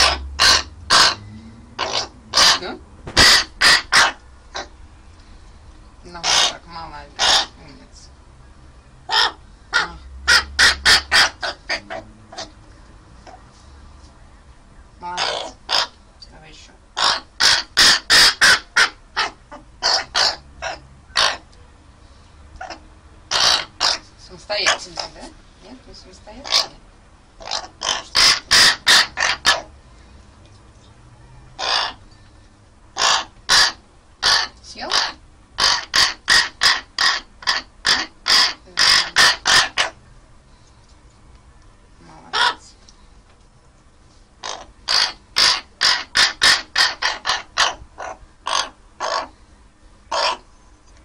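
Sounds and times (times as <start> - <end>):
raven calling harshly: 0.0 - 4.8, 6.1 - 8.0, 9.1 - 12.6, 15.0 - 16.0, 16.9 - 21.5, 22.6 - 25.4, 26.3 - 26.8, 27.4 - 29.8, 31.6 - 32.0, 32.9 - 40.0, 42.1 - 42.8, 44.4 - 49.4, 50.1 - 50.5.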